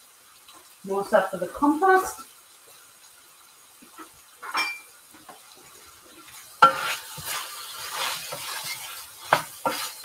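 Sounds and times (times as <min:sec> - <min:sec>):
chicken sizzling in a pan: 0:00.0 - 0:10.0
utensil scraping a pan: 0:06.2 - 0:10.0.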